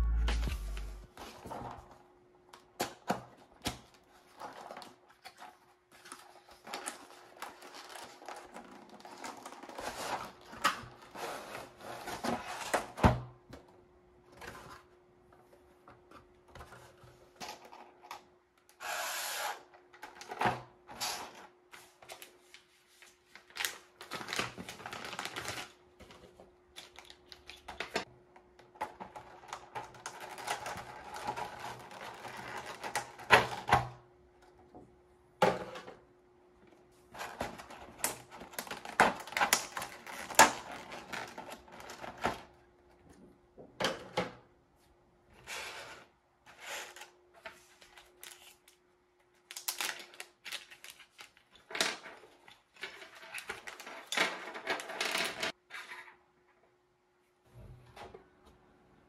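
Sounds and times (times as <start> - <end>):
packaging rustling: 22.0 - 28.1, 47.6 - 55.0.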